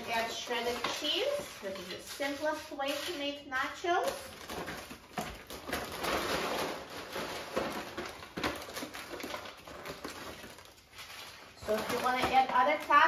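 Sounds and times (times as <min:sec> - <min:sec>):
chips rustling in a paper bag: 0:00.0 - 0:13.0.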